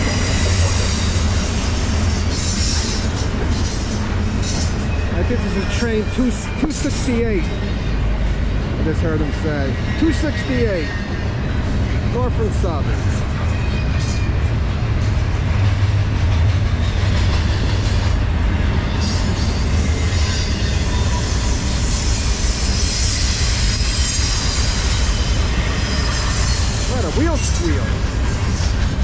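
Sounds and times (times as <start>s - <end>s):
steel wheels rumbling on rail: 0.0s - 29.0s.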